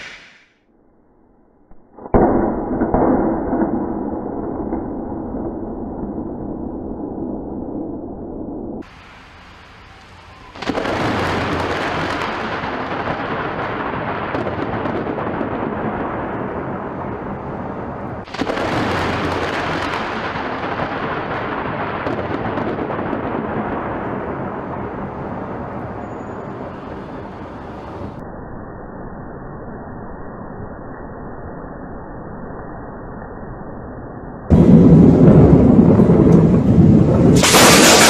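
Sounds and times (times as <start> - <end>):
thunder crack and rumble: 2.0 - 28.2, 34.5 - 38.0.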